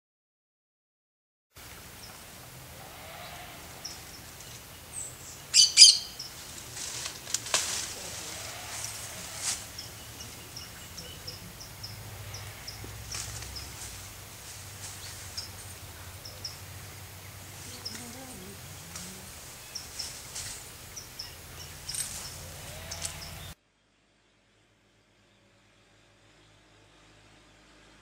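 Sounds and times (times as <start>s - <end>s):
low hum: 1.6s - 28.0s
parakeets chirping: 3.6s - 6.6s, 8.9s - 23.6s.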